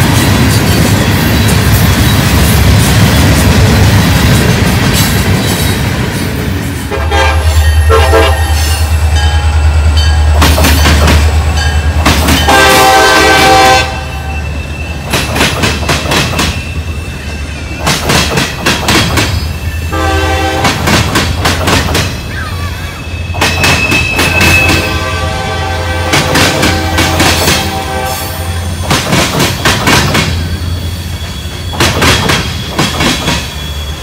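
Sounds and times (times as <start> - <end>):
train wheels rumbling on rails: 0.0 - 34.0
locomotive air horn blasts: 6.9 - 8.8, 12.4 - 14.4, 19.9 - 20.8, 24.4 - 28.7
wheels clacking over rail joints: 8.5 - 13.6, 15.0 - 16.8, 17.7 - 22.4, 23.3 - 25.0, 28.8 - 30.7, 31.3 - 33.7.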